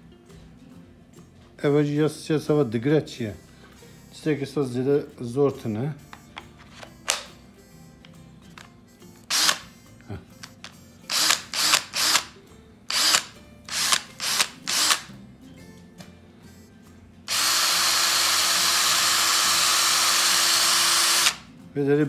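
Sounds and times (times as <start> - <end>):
battery pack clicking in: 7.0 - 7.3
cordless drill motor: 9.3 - 9.6, 11.1 - 12.3, 12.9 - 15.1, 17.3 - 21.5.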